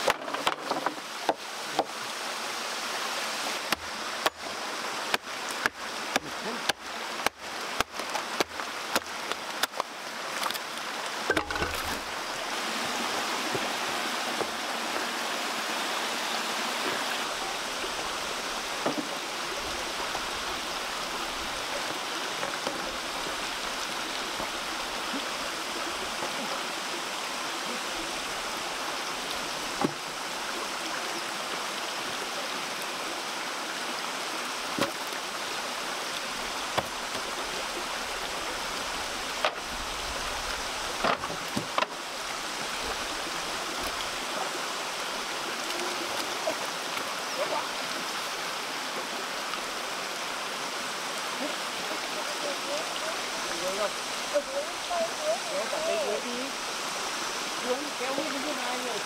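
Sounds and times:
rocky stream running: 0.0s - 59.0s
sharp knocks on wooden posts: 11.3s - 12.0s.

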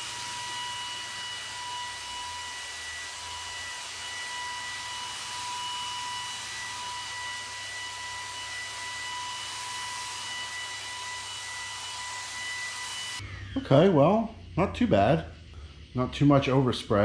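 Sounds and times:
electric paint sprayer running: 0.0s - 13.2s.

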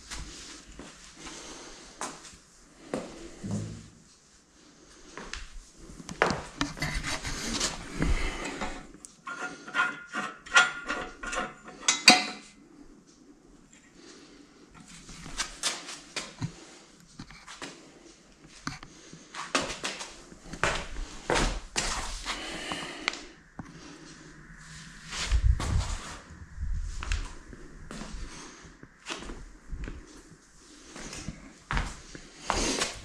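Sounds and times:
metal clinking and scraping: 8.4s - 12.6s.

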